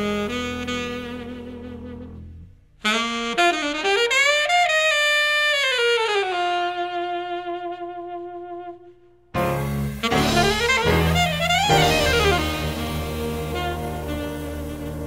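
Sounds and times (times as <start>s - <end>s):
saxophone melody: 0.0s - 15.0s.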